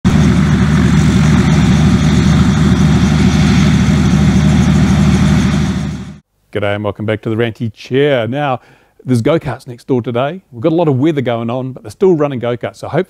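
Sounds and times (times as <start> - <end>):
helicopter engine and rotor drone: 0.1 - 6.2.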